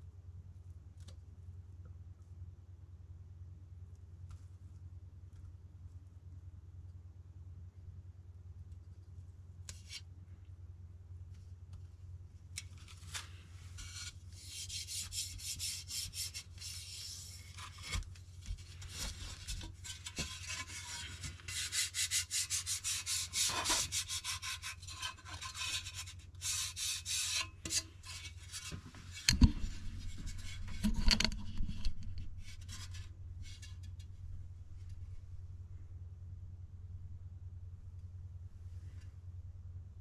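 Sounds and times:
steady low hum: 0:00.0 - 0:40.0
hands rubbing a sticker: 0:12.7 - 0:33.9.

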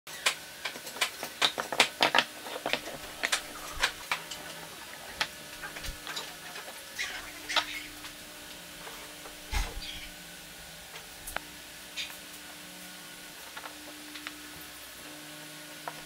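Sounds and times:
wooden pieces clacking: 0:00.2 - 0:06.4.

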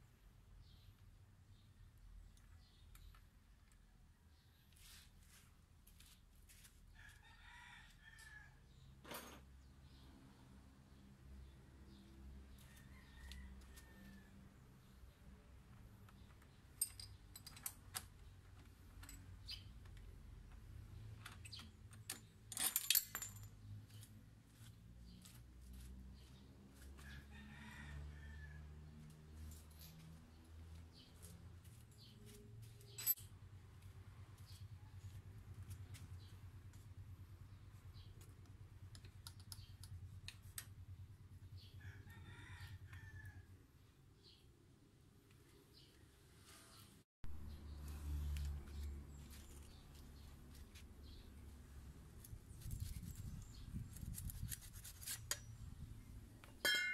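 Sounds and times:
rooster crowing: 0:12.6 - 0:14.4, 0:27.0 - 0:28.8, 0:41.8 - 0:43.6
metallic clicks and scrapes: 0:52.2 - 0:55.7
ringing metal clinks: 0:56.6 - 0:56.9.

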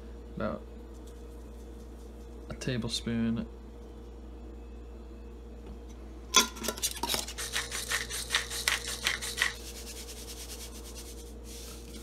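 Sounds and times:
spoon scraping sugar in jar: 0:06.6 - 0:11.2.

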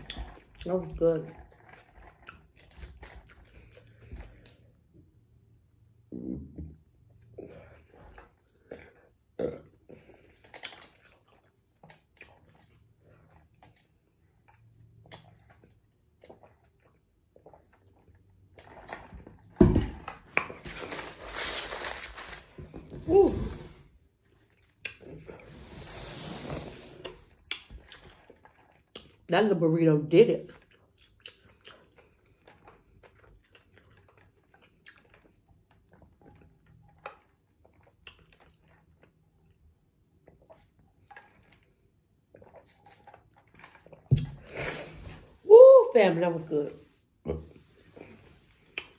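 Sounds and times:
sipping through a straw: 0:25.1 - 0:27.4.

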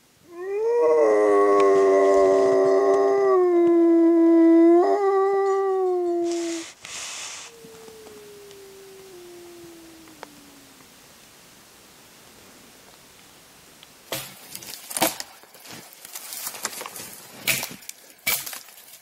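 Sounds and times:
dog howling: 0:00.3 - 0:06.8, 0:07.4 - 0:10.9
short hisses: 0:06.3 - 0:07.8.

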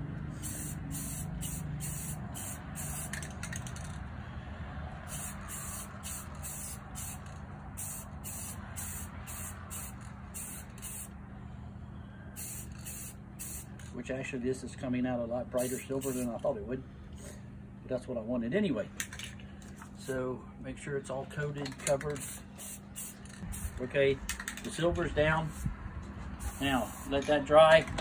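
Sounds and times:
spray paint can hissing: 0:00.3 - 0:03.9, 0:05.1 - 0:11.1, 0:12.4 - 0:13.7, 0:15.6 - 0:16.3, 0:22.1 - 0:23.8, 0:26.4 - 0:27.2.

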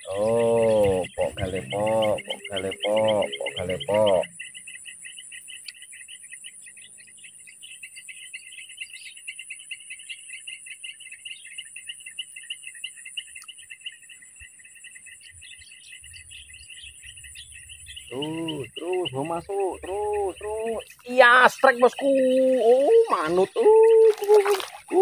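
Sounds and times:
bird chirps: 0:00.0 - 0:25.0
insects trilling: 0:00.0 - 0:25.0.

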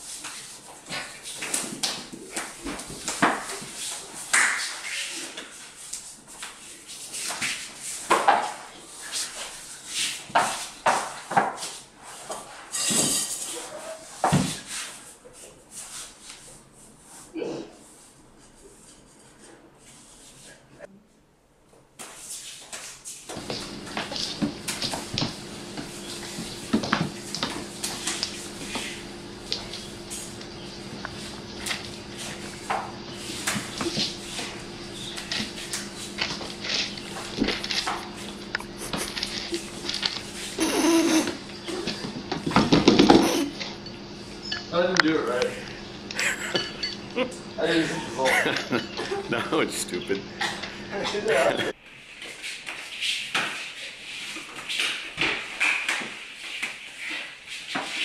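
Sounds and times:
people crawling on tile floor: 0:00.0 - 0:20.8, 0:22.0 - 0:43.9
steady low hum: 0:23.3 - 0:51.8.

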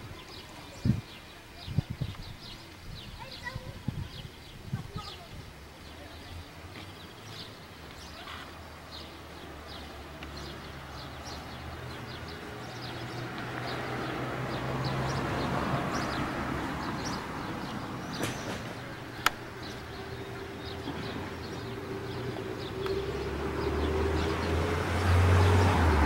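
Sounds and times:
small birds chirping: 0:00.0 - 0:26.0
passing vehicle rushing noise: 0:09.4 - 0:26.0
sharp click: 0:18.2 - 0:19.4.

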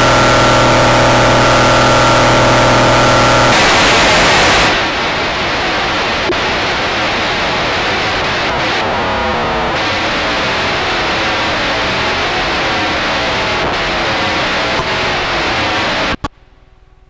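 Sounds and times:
distorted electronic noise texture: 0:00.0 - 0:16.3
rising and falling tones: 0:08.3 - 0:14.8.

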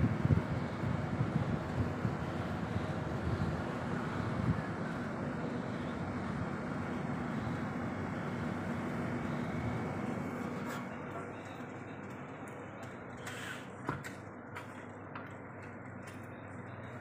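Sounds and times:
wind buffeting microphone: 0:00.0 - 0:04.9
low mechanical drone: 0:00.0 - 0:17.0.

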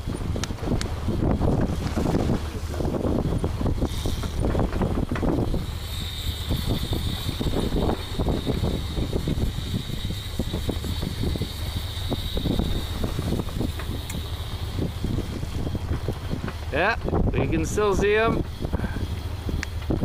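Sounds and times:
boat low rumble: 0:00.0 - 0:20.0
wind buffeting microphone: 0:00.0 - 0:20.0
fishing reel buzzing: 0:03.0 - 0:16.9.

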